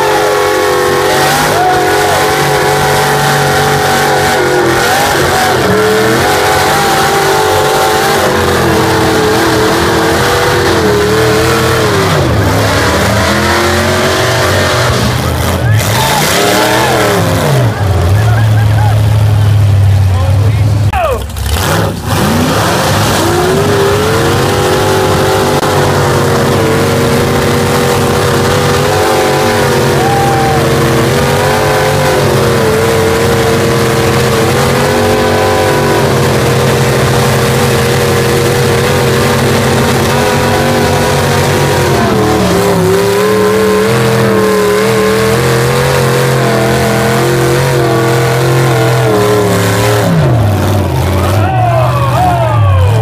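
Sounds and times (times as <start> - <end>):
truck engines at high revs: 0.0 - 53.0.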